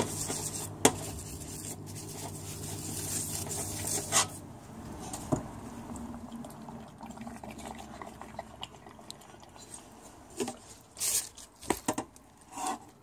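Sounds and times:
small clicks and drips: 5.9s - 10.0s.

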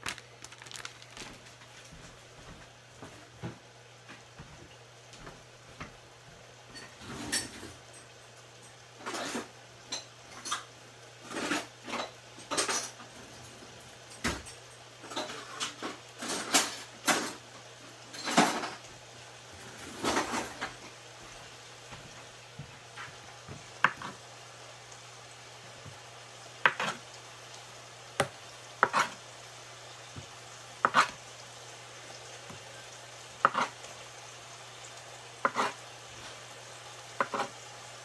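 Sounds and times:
dishes and utensils clattering: 6.7s - 13.5s, 14.1s - 17.4s, 18.0s - 18.9s, 19.6s - 20.9s.

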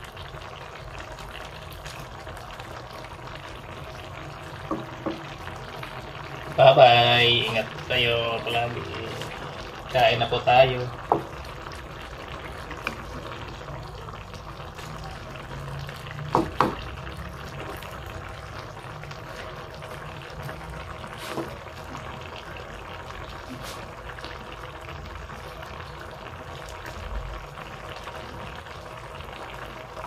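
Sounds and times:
stew simmering and bubbling: 0.0s - 30.0s
wooden spatula knocking on pan: 4.6s - 5.3s, 11.1s - 11.3s, 16.3s - 16.8s.

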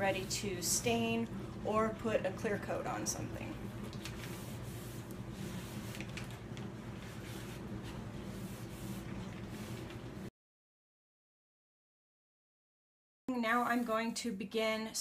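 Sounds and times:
steady low hum: 0.0s - 10.3s
cloth rubbing on wood: 4.0s - 10.3s.

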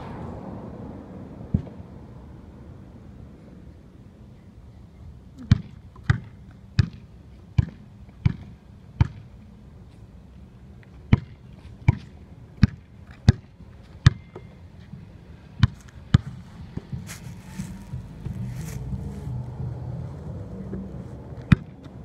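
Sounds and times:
basketball dribbled on hard ground: 5.5s - 7.0s, 7.6s - 9.3s, 11.1s - 14.4s, 15.6s - 17.2s, 21.4s - 21.9s.

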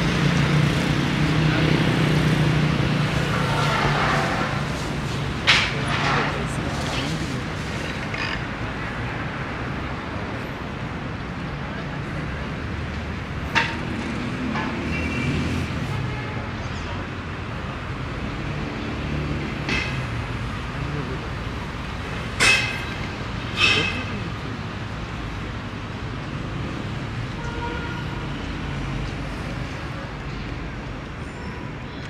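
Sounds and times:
street traffic rumble: 0.0s - 32.0s.

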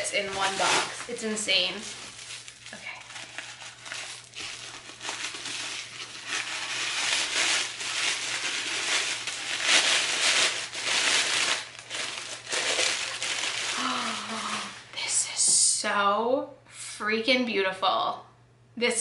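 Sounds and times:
bubble wrap and tissue paper crinkling: 0.0s - 14.9s.

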